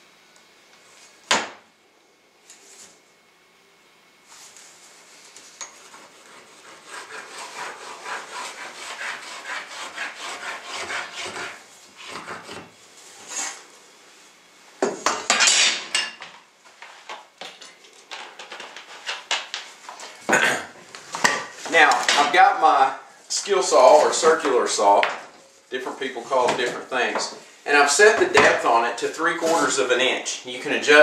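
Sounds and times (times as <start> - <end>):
pencil scratching along metal square: 5.8 - 12.6.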